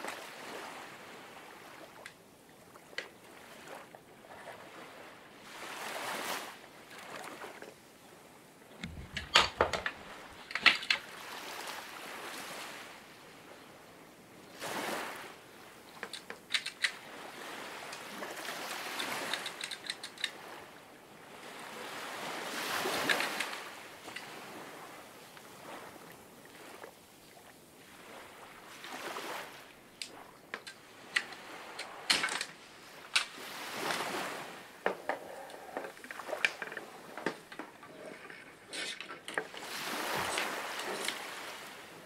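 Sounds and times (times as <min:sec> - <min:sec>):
water washing in swells: 0:00.0 - 0:42.0
sharp clicks and knocks: 0:08.8 - 0:11.0, 0:16.0 - 0:17.0, 0:19.3 - 0:20.3.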